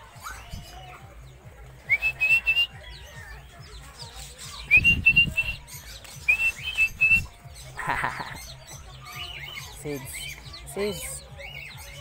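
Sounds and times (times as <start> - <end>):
person whistling calls: 1.9 - 2.7, 4.7 - 5.6.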